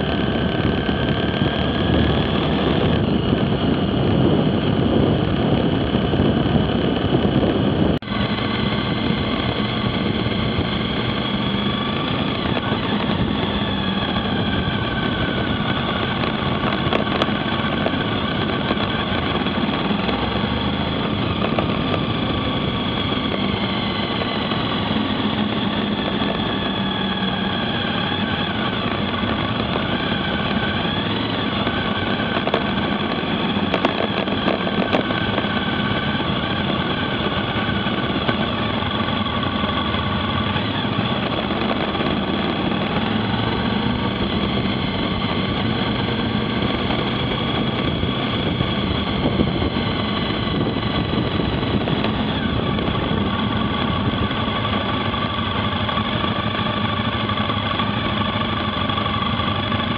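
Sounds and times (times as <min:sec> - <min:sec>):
motorcycle engine running: 0:00.0 - 0:59.9
wind noise: 0:00.0 - 0:59.9.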